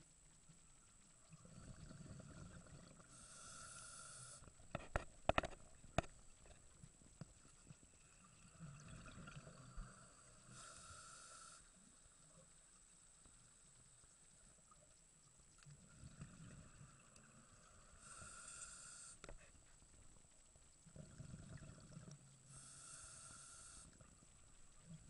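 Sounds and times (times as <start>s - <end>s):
bubbling rumble of exhaled bubbles: 1.2s - 3.1s, 8.1s - 9.9s, 20.8s - 22.4s
regulator inhalation hiss: 3.1s - 4.4s, 9.8s - 11.8s, 18.0s - 19.3s, 22.5s - 23.9s.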